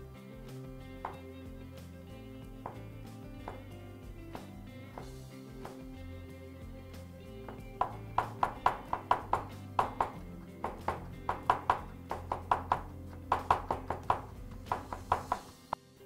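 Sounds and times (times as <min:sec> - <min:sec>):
background music: 0:00.0 - 0:16.0
knife chopping on wooden board: 0:07.5 - 0:15.6.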